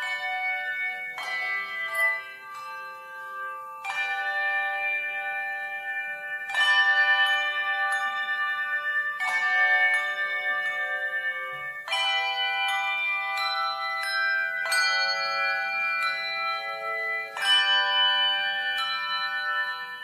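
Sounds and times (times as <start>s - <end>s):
ringing bell chords: 0.0s - 20.0s.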